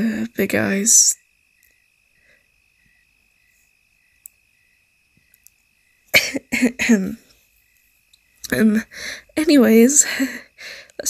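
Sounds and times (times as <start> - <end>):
woman's voice: 0.0 - 1.2, 6.2 - 7.2, 8.5 - 11.0
faint cricket chirping: 0.0 - 11.0.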